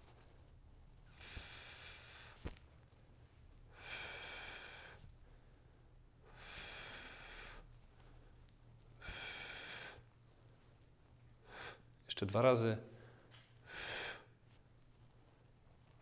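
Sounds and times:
man breathing out: 0:03.7 - 0:05.0, 0:06.2 - 0:07.7, 0:09.0 - 0:10.0, 0:13.0 - 0:14.4.

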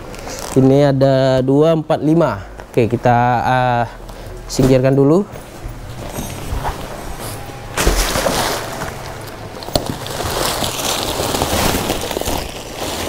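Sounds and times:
plastic bag rustling: 0:04.5 - 0:13.0.

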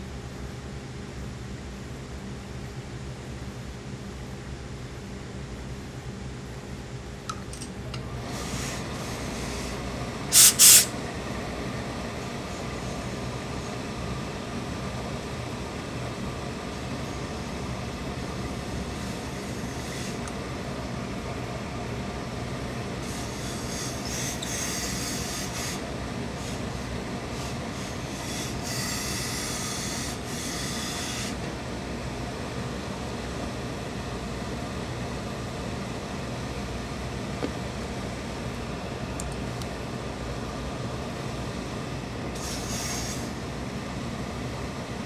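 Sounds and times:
steam hissing: 0:10.3 - 0:10.9, 0:23.0 - 0:25.8
steam iron blasts: 0:10.3 - 0:11.0.

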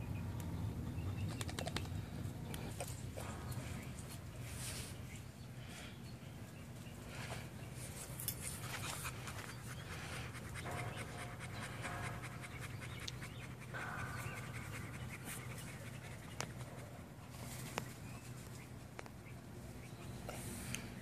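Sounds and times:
dog panting: 0:08.3 - 0:17.5.

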